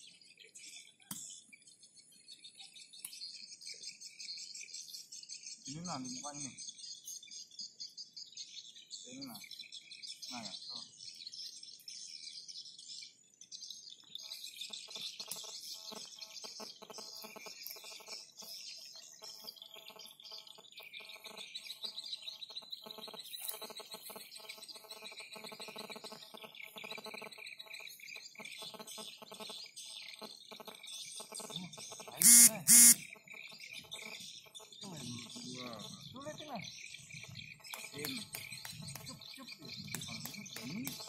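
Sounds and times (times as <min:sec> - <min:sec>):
birds chirping: 0:00.3 - 0:41.0
loud short burst: 0:32.2 - 0:33.0.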